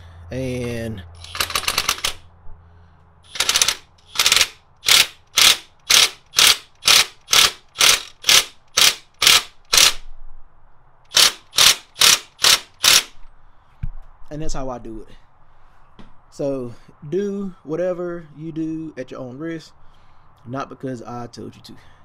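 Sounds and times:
impact wrench hammering: 1.2s - 2.2s, 3.3s - 10.0s, 11.1s - 13.2s.

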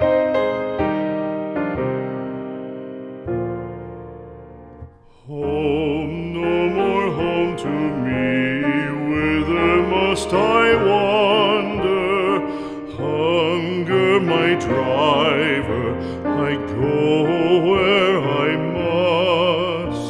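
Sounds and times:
piano: 0.0s - 20.0s
classical singing voice with vibrato: 5.0s - 20.0s.

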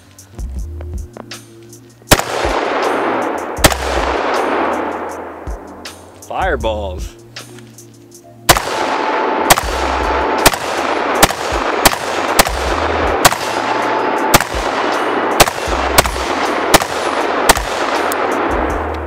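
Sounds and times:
gunshots: 2.1s - 5.6s, 8.5s - 18.8s.

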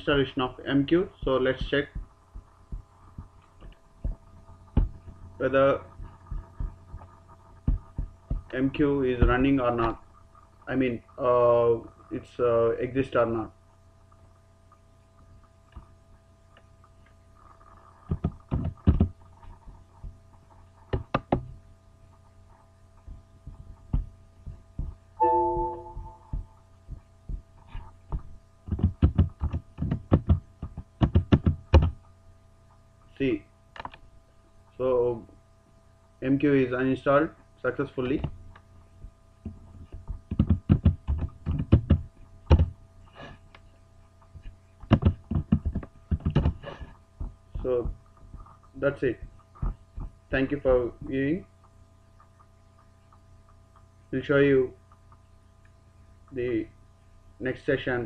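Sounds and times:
faint electrical hum: 0.0s - 58.0s
keyboard typing: 28.1s - 32.0s, 40.3s - 42.7s.

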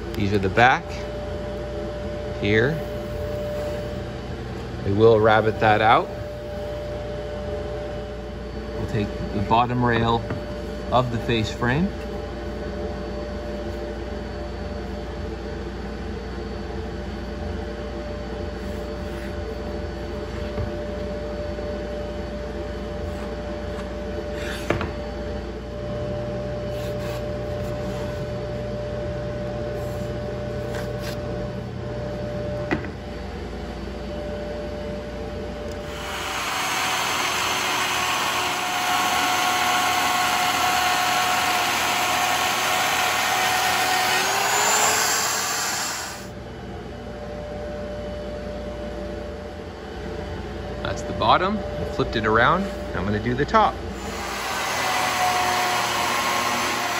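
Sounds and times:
workshop hum: 0.0s - 56.9s
router whining: 35.7s - 46.3s, 53.9s - 56.9s.

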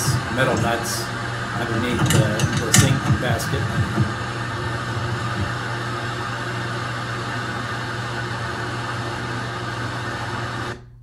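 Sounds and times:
steady rushing noise: 0.0s - 7.3s
low hum: 0.0s - 10.6s.

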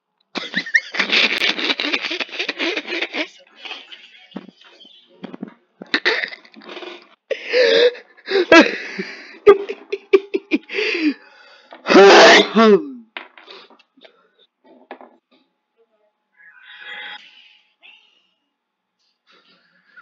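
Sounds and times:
woman talking: 3.2s - 4.7s.

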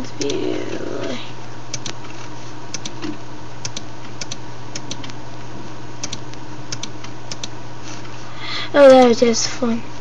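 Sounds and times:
steady low hum: 0.0s - 10.0s
computer mouse clicks: 2.7s - 5.2s, 6.0s - 7.6s.

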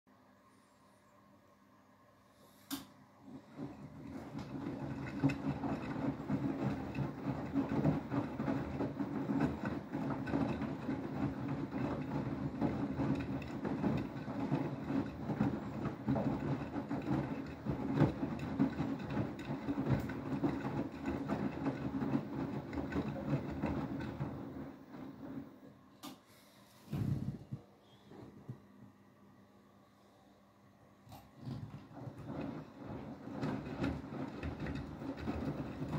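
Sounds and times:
washing machine motor humming: 3.0s - 29.6s, 30.7s - 35.9s
laundry sloshing in drum: 3.3s - 25.6s, 31.1s - 35.9s.

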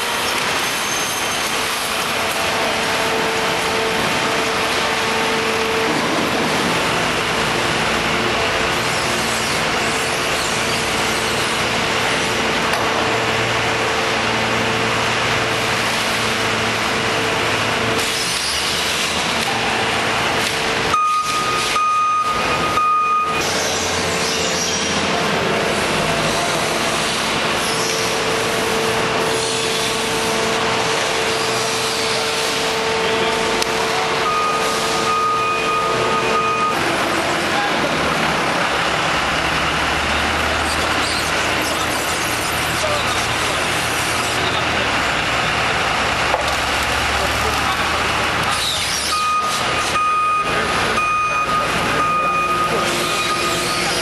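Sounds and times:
forklift hum: 0.0s - 54.0s
high warning tone: 20.8s - 24.1s, 32.2s - 37.2s, 49.1s - 54.0s.

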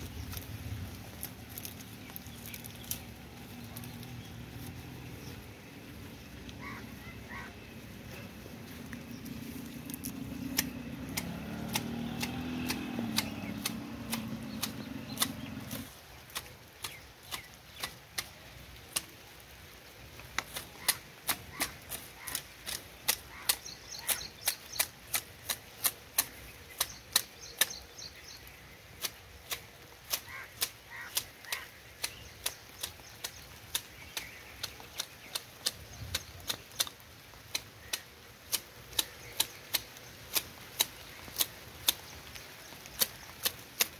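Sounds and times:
hedge shears snipping: 8.1s - 19.2s, 20.3s - 27.8s, 28.9s - 43.9s.

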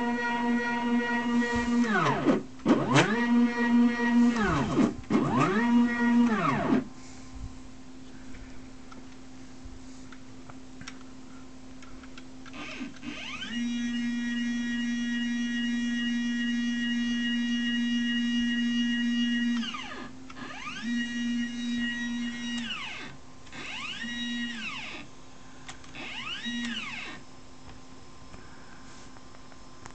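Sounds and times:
stepper motor whine: 0.0s - 6.9s, 12.5s - 25.1s, 25.9s - 27.2s
low steady hum: 0.0s - 29.9s.

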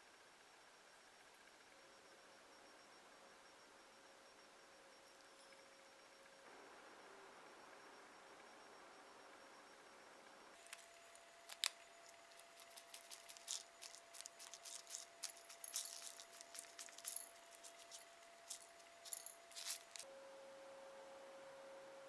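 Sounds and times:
candy pieces ticking on a plate: 10.6s - 20.0s
paper packet shaking: 11.5s - 20.0s.

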